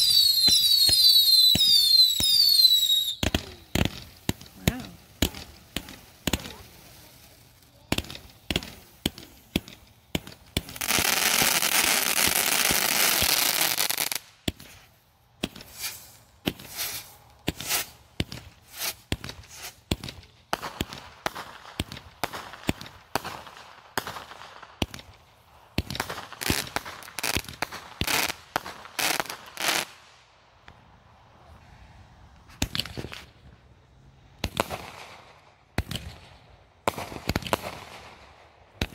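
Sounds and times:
fireworks hissing: 0.0s - 24.4s
fireworks pops and bangs: 0.0s - 30.8s, 32.3s - 33.6s, 34.4s - 38.9s
crackling pops: 3.1s - 6.8s, 7.9s - 13.5s.

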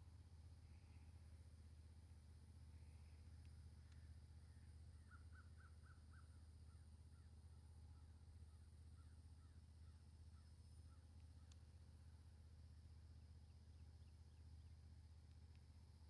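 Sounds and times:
low steady hum: 0.0s - 16.0s
distant bird calling: 2.7s - 11.6s.

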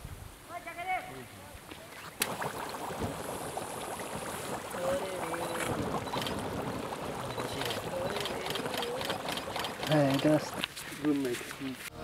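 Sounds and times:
gas bubbling through mud: 2.0s - 11.0s.

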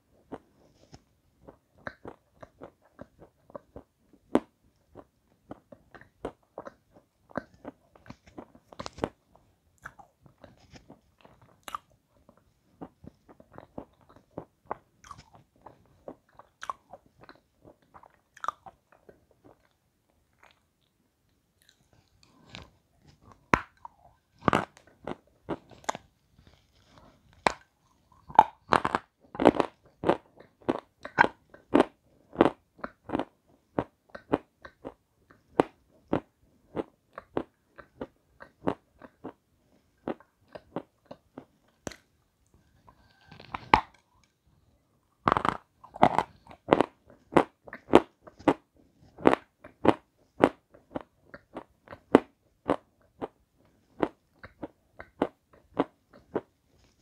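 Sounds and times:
crunching and chewing food: 0.0s - 57.0s.

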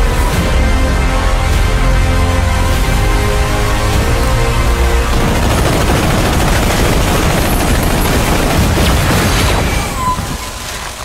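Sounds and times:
dense crackling and booming: 4.6s - 11.0s.

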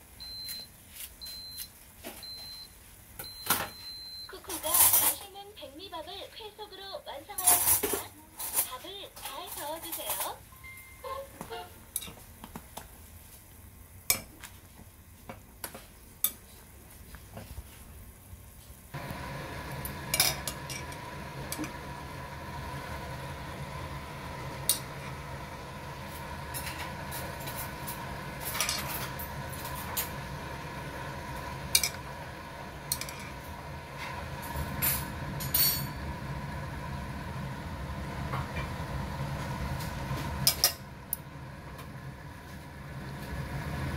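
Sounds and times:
boiling broth hissing: 15.6s - 43.9s.

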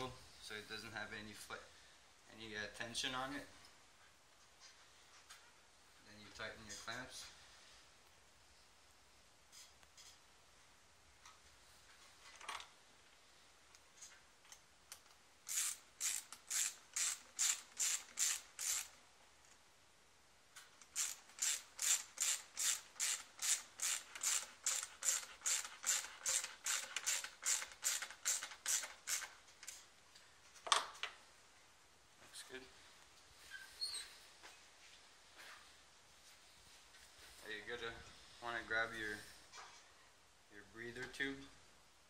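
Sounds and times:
ratchet clicking: 15.5s - 19.0s, 20.8s - 29.3s.

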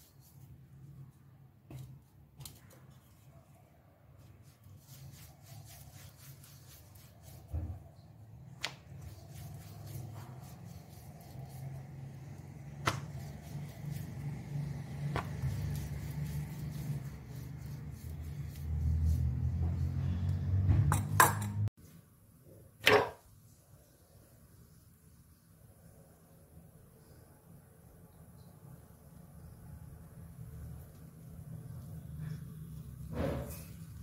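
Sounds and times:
soft rubbing of dough: 0.0s - 20.6s, 23.3s - 34.0s.

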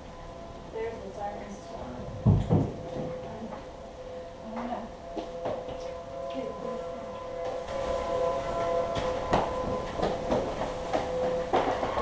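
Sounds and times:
two-note storm siren: 0.0s - 12.0s.

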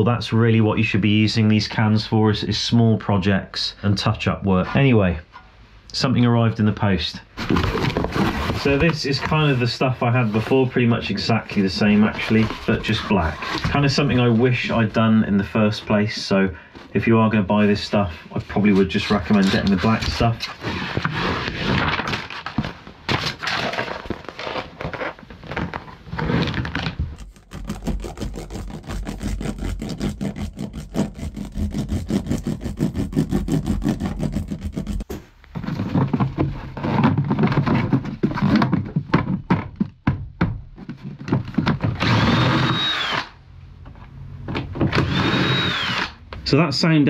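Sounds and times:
cordless drill whirring: 42.0s - 43.3s, 44.9s - 46.2s.

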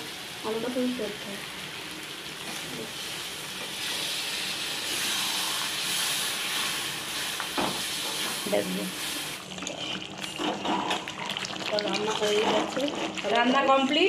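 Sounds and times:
hot oil hissing and sizzling: 0.0s - 14.0s
water pouring: 9.4s - 14.0s.

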